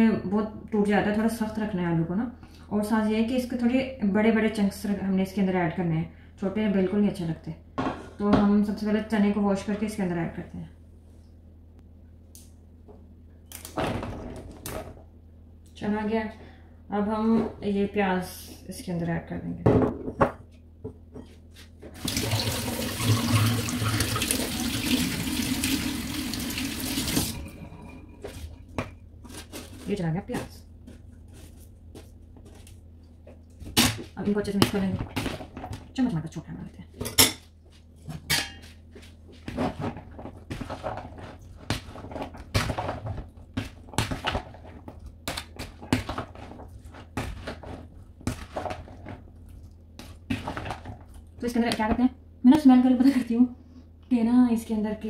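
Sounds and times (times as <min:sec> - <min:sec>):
tap water running into sink: 0:22.0 - 0:27.4.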